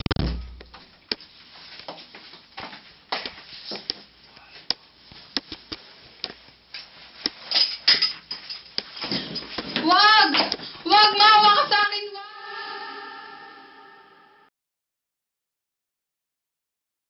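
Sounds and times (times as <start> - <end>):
clothing rustling: 4.9 - 9.9.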